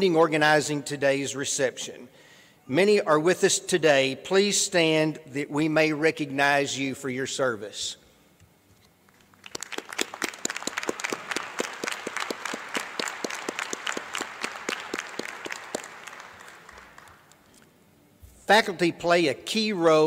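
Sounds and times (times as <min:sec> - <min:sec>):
crowd applauding: 0:09.4 - 0:17.4.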